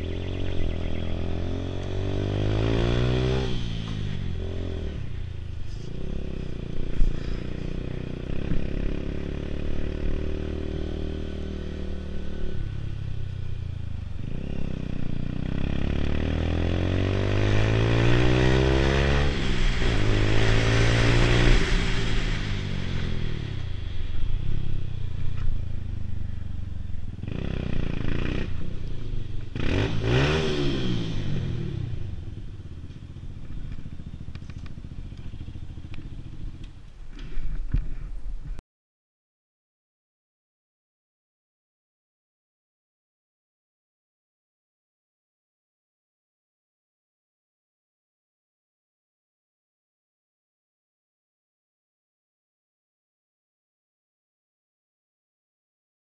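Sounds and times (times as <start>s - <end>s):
motorcycle engine accelerating: 0.0s - 38.1s.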